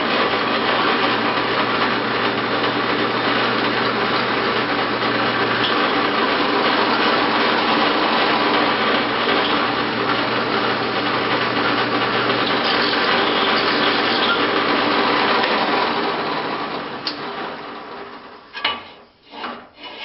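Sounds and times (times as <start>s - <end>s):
drill press running: 0.0s - 18.9s.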